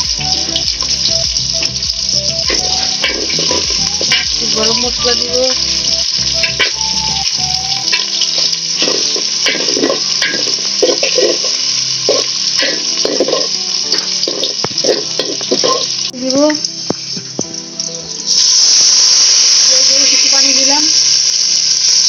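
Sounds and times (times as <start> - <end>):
food sizzling in hot oil: 0.0 - 22.0
water hissing in hot oil: 0.0 - 22.0
metal spatula scraping pot: 2.5 - 6.8, 7.9 - 16.0.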